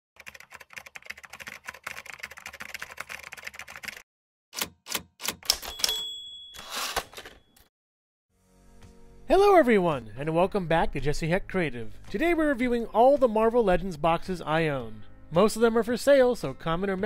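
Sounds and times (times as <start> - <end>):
typewriter keystrokes clattering: 0.2 - 4.0, 4.6 - 6.1
typewriter bell ding: 5.3 - 7.6.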